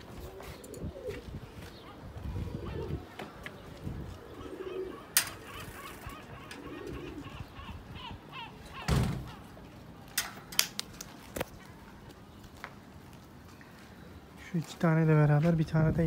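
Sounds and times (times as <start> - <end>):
pigeons cooing softly: 0.0 - 9.8.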